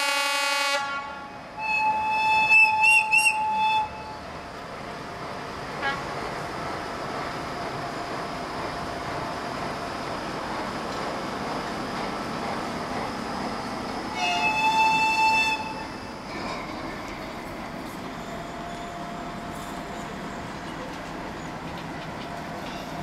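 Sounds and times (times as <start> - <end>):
locomotive horn blast: 0.0 - 4.1
diesel locomotive engine running: 3.6 - 23.0.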